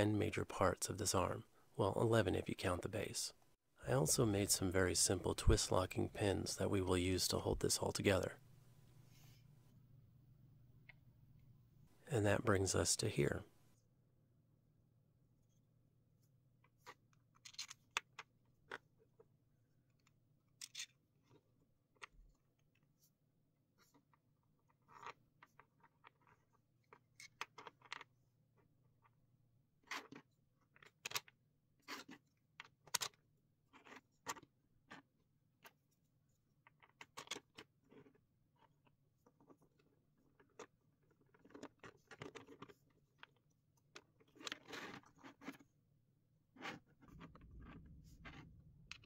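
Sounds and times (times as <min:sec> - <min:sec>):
plastic parts clicking and tapping: 0:29.8 - 0:35.8.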